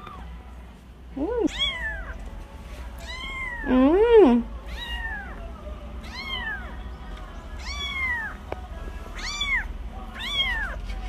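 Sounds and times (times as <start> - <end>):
kitten mewing: 1.2 - 2.1, 3.0 - 5.4.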